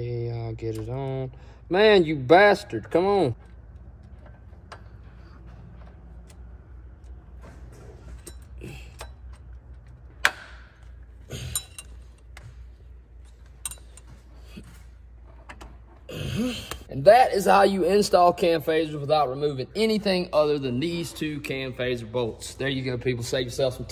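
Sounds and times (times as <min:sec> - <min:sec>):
metallic clicks and clinks: 0:11.4 - 0:12.4, 0:13.2 - 0:14.2.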